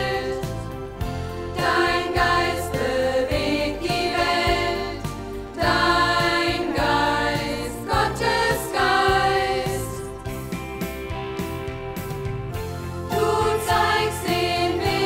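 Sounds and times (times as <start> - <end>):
voices singing: 0.0 - 0.6, 1.6 - 10.1, 13.1 - 15.0
instrumental accompaniment: 0.0 - 15.0.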